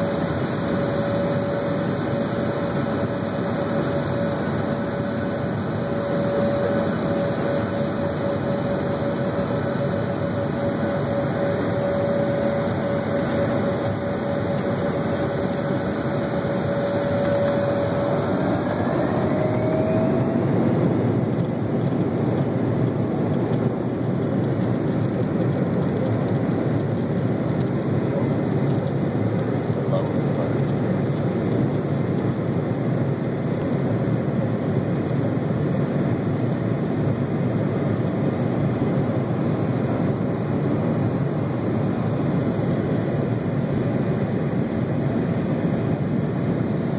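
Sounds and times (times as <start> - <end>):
engine and air rushing: 0.0 - 25.4
jet engines whining: 0.0 - 46.9.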